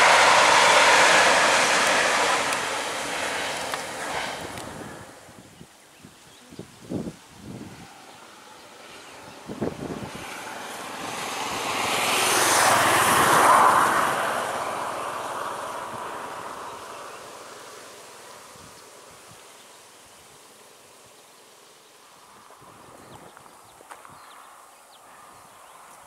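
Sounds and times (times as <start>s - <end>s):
vehicle passing: 0.0s - 5.4s, 7.6s - 19.1s.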